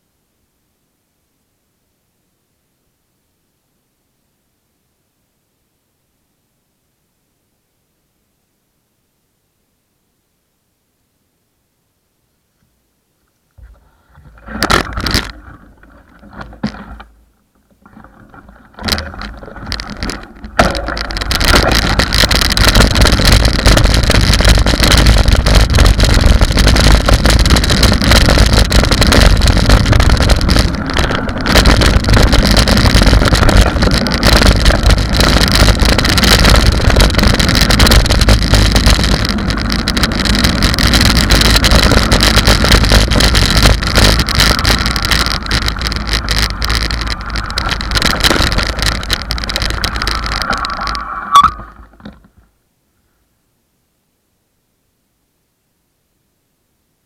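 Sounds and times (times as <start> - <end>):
bike tyres on gravel: 13.6 - 52.6.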